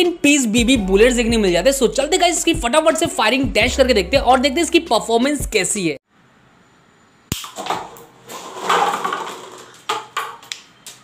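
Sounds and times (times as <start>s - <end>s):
paper cups tumbling: 7.6s - 10.5s.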